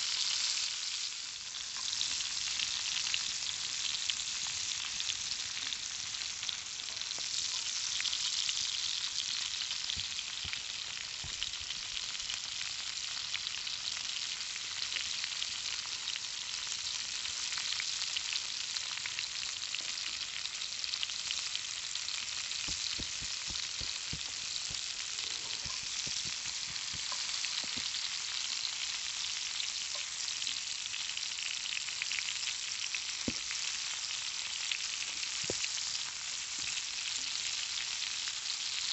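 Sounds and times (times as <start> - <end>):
sausages sizzling in a skillet: 0.0 - 38.9
small crackling pops: 22.4 - 28.0, 33.2 - 33.6, 35.0 - 35.9.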